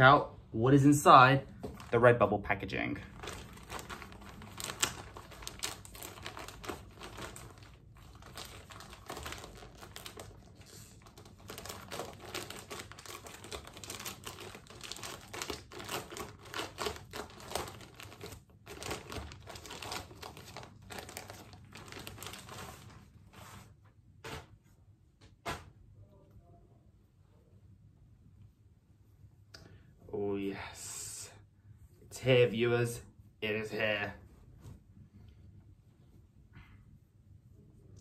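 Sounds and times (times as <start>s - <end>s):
plastic bag crinkling: 1.6s - 2.2s, 2.9s - 23.4s.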